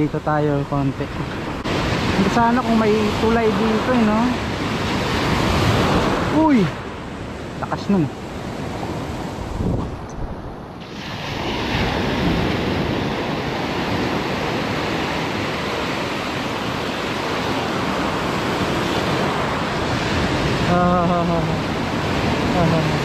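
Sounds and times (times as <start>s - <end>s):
ocean waves breaking: 0.0s - 23.0s
wind on microphone: 0.7s - 23.0s.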